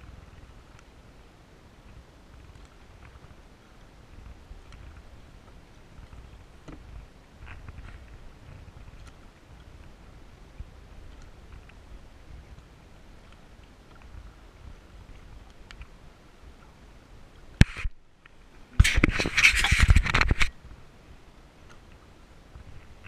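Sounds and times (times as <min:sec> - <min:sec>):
low rumble of wind and water: 0:00.0 - 0:23.0
scraping and crackling against camera: 0:04.6 - 0:05.1, 0:06.0 - 0:09.2, 0:17.6 - 0:18.0, 0:18.8 - 0:20.6.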